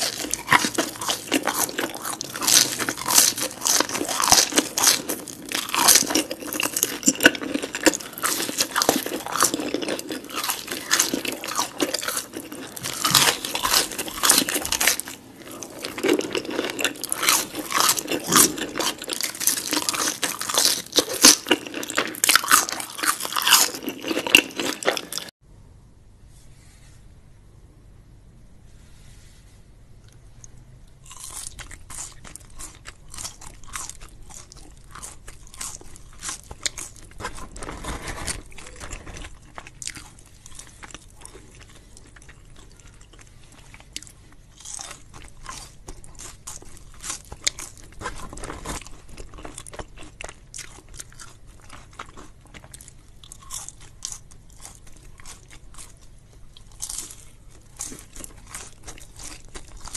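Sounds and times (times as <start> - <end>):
chewing crispy fries: 0.0 - 25.3, 30.1 - 59.9.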